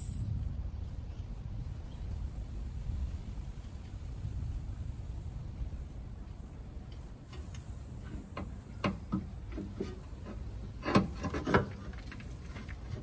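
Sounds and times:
suspension strut knocks and scrapes: 7.3 - 13.0.

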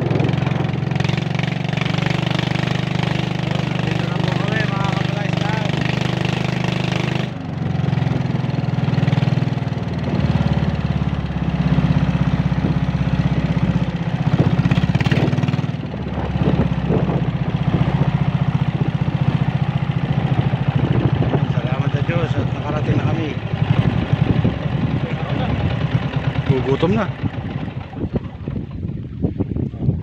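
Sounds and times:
small boat engine running: 0.0 - 30.0.

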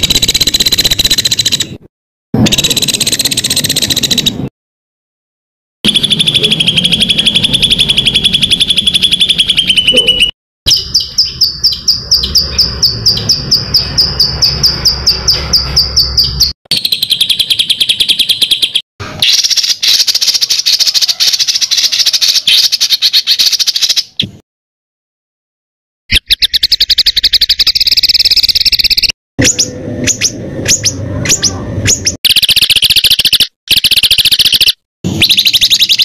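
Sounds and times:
songbird trills: 26.1 - 36.0.

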